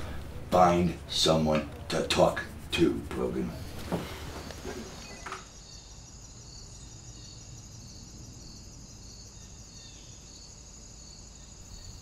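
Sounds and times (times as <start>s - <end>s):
rustling movement: 0.0s - 5.2s
crickets trilling: 2.2s - 12.0s.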